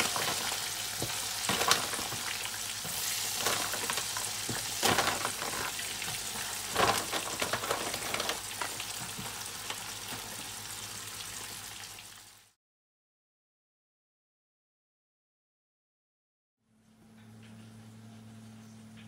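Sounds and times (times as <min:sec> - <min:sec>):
dumplings sizzling in hot oil: 0:00.0 - 0:12.6.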